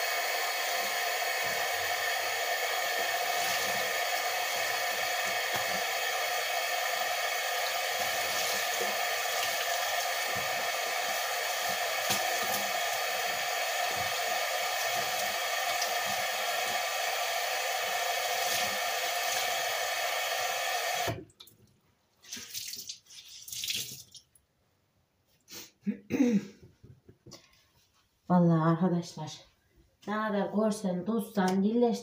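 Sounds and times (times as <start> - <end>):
tap water running into sink: 7.0 - 17.0, 18.2 - 19.6, 22.2 - 24.3.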